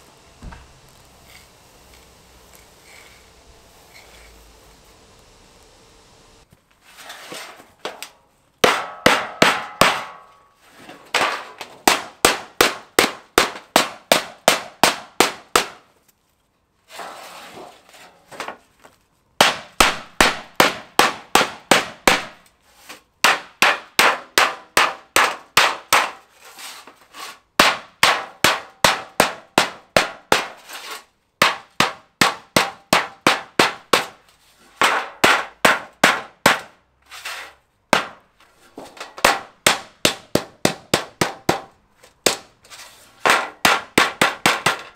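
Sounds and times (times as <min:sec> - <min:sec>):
hammer clanging on sheet metal: 0:07.8 - 0:15.8, 0:19.4 - 0:22.4, 0:23.2 - 0:26.2, 0:31.4 - 0:34.2, 0:34.8 - 0:36.7, 0:43.2 - 0:44.9.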